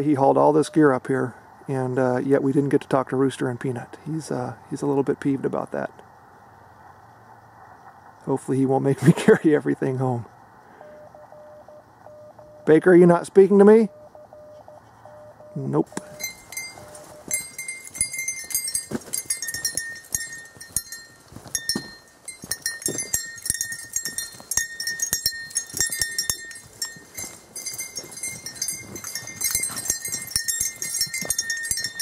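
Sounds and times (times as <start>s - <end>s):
goat footfalls on dirt: 16.0s - 32.0s
light metallic jingle: 16.0s - 32.0s.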